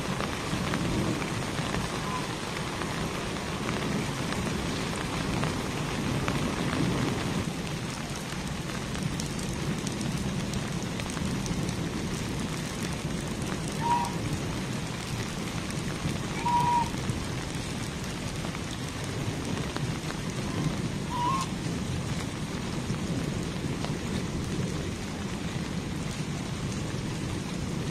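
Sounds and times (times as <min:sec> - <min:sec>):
steady rain falling: 0:00.0 - 0:27.9
goose honking: 0:13.8 - 0:14.2, 0:21.1 - 0:21.5.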